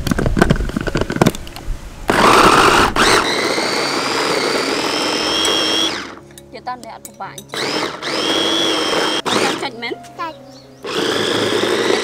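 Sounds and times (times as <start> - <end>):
food chopper motor whining: 2.1 - 6.2, 7.5 - 9.7, 10.8 - 12.0.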